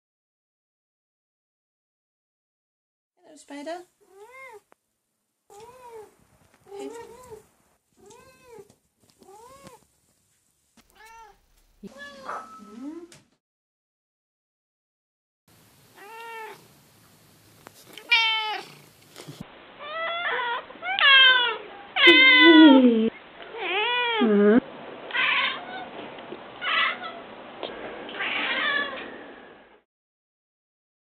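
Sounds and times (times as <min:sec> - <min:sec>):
cat meowing: 0:04.1 - 0:04.6, 0:05.5 - 0:06.1, 0:06.7 - 0:07.4, 0:08.0 - 0:09.8, 0:10.9 - 0:12.4, 0:16.0 - 0:16.6, 0:18.0 - 0:18.8, 0:19.8 - 0:25.9, 0:26.6 - 0:27.2, 0:28.3 - 0:29.0.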